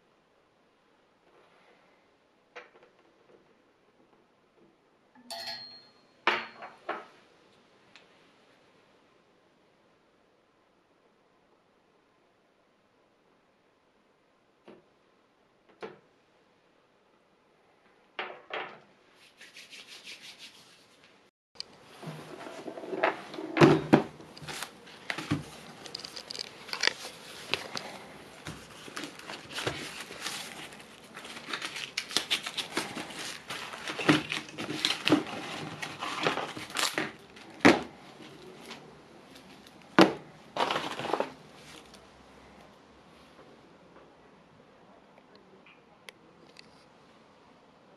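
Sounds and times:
plastic wrap crinkling: 0:24.2 - 0:38.8, 0:40.5 - 0:42.0.

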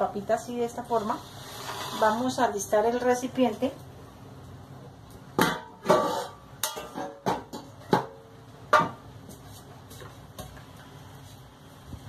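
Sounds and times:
metal cookware clattering: 0:05.4 - 0:09.0.

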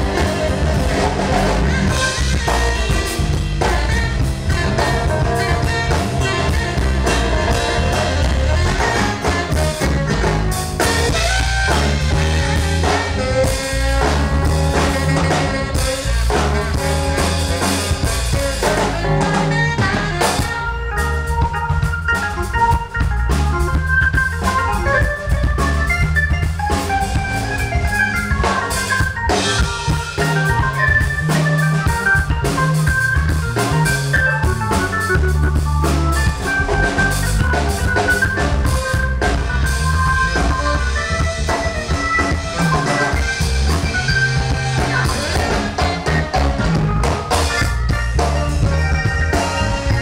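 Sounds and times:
drum kit beat: 0:00.0 - 0:50.0
organ-toned electric keyboard: 0:00.0 - 0:50.0.

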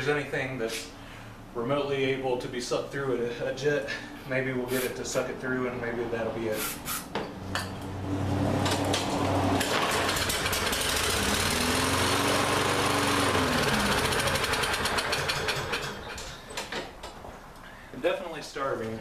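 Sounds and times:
lawn mower engine running: 0:08.3 - 0:16.6
mower engine pull-started: 0:08.6 - 0:16.9.

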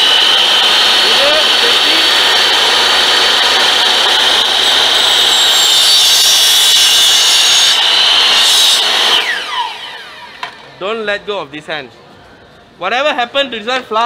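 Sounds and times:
miter saw cutting bamboo: 0:00.0 - 0:10.7.

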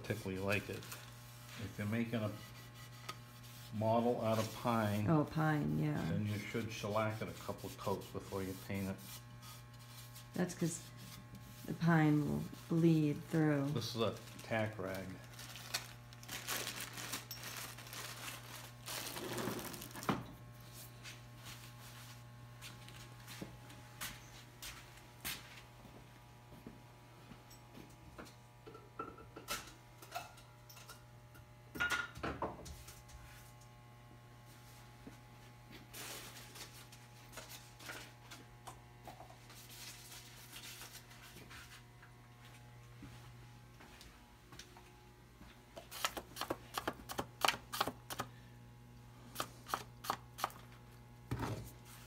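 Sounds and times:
steady low hum: 0:00.0 - 0:46.8
plastic wrapper rustling and crinkling: 0:13.7 - 0:20.1.

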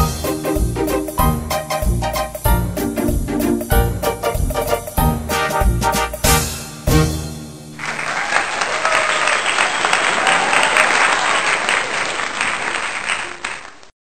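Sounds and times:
crowd applause: 0:07.7 - 0:13.9.

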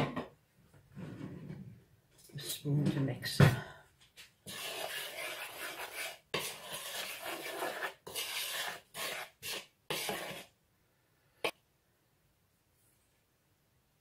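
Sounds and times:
metal spoon scraping dry mix in bowl: 0:04.4 - 0:10.5.

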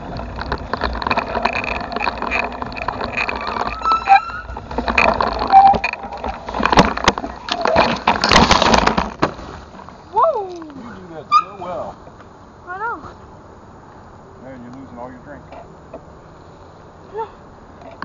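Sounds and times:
bicycle rattling and knocking: 0:00.0 - 0:10.0
brush rustling and scraping: 0:00.0 - 0:12.2, 0:12.9 - 0:13.4.

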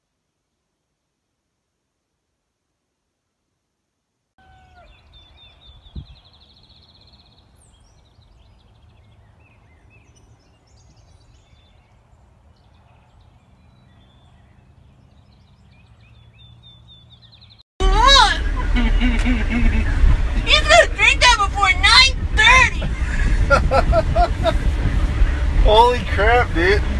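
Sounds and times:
songbirds chirping: 0:04.4 - 0:17.6
low steady rumble: 0:17.8 - 0:26.9.

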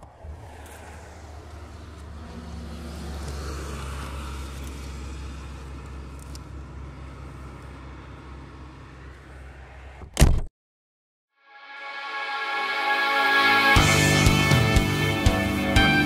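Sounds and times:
vehicle passing: 0:00.0 - 0:10.0.

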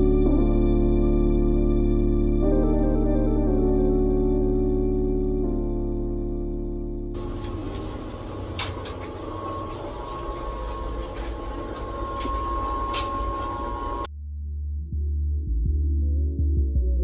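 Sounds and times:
soft music: 0:00.0 - 0:14.1
ice maker humming: 0:07.2 - 0:14.1
thin high whine: 0:07.2 - 0:14.1.

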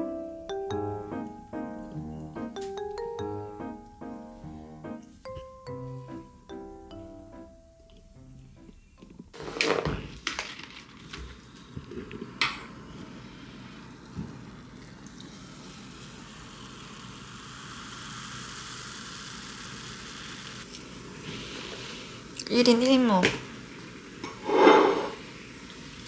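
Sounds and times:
cola fizzing into a glass: 0:14.0 - 0:21.7.

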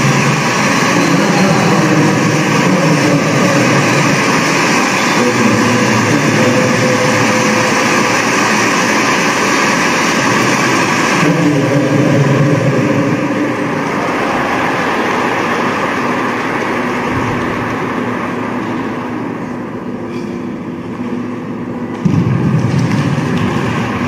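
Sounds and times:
audience applause: 0:00.0 - 0:18.6, 0:22.5 - 0:24.0
loud low sound: 0:00.0 - 0:24.0.

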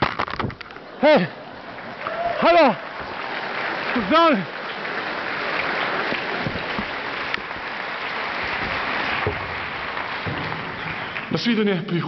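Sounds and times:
audience applauding: 0:01.0 - 0:12.0
faint low knocks: 0:08.6 - 0:11.9.

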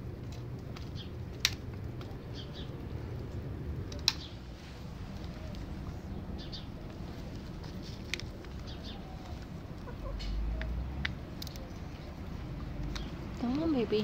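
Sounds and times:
chickens clucking softly: 0:08.6 - 0:10.8.

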